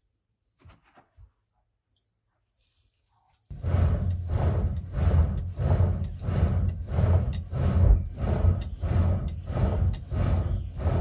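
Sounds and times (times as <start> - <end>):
bellows whooshing air: 3.5 - 11.0.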